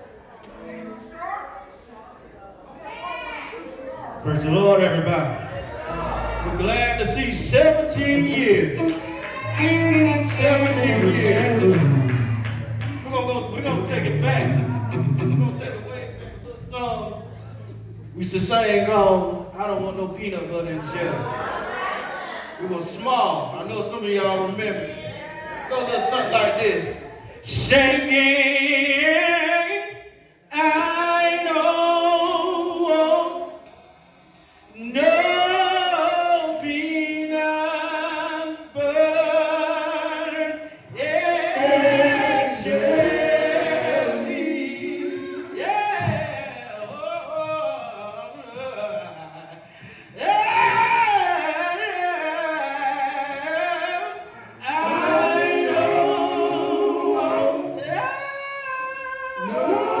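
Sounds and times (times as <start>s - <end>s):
male vocal group singing in harmony: 5.8s - 12.2s, 34.7s - 60.0s.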